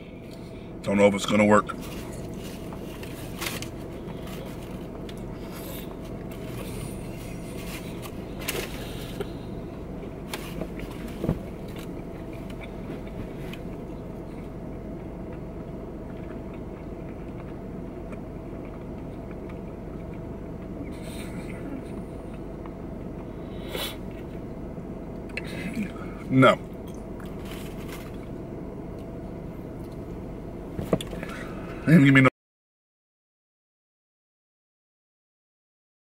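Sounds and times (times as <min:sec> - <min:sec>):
car cabin hum: 0:00.0 - 0:32.3
person chewing food: 0:01.8 - 0:24.4, 0:25.1 - 0:30.2.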